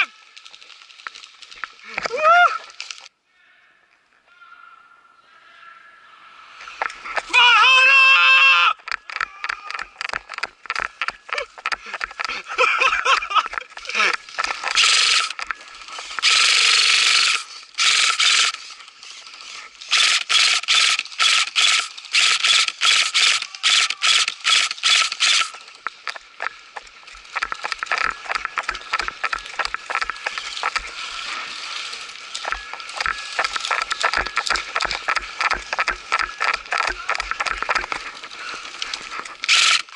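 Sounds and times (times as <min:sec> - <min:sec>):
rustling: 0:00.0 - 0:03.1, 0:08.8 - 0:39.9
footsteps: 0:00.3 - 0:03.1, 0:06.6 - 0:07.4, 0:08.8 - 0:16.4, 0:24.5 - 0:39.9
airsoft gun firing bursts: 0:14.6 - 0:15.4, 0:16.2 - 0:18.6, 0:19.9 - 0:25.6, 0:32.6 - 0:38.0, 0:39.4 - 0:39.9.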